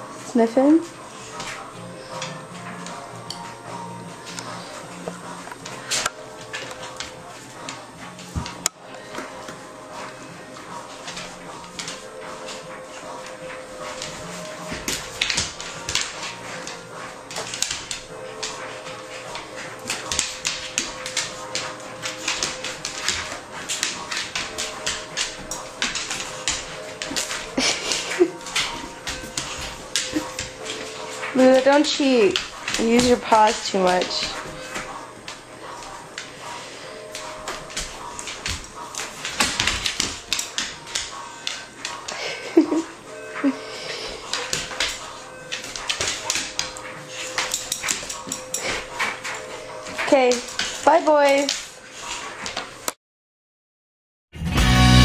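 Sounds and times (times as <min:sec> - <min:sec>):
dog claws clicking on wooden floor: 0:13.5 - 0:36.3, 0:37.1 - 0:42.2, 0:44.2 - 0:51.7.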